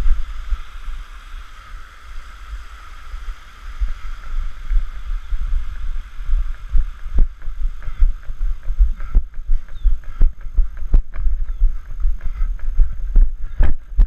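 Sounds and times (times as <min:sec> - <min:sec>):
wind buffeting microphone: 0:00.0 - 0:14.0
running footsteps on dirt trail: 0:03.1 - 0:14.0.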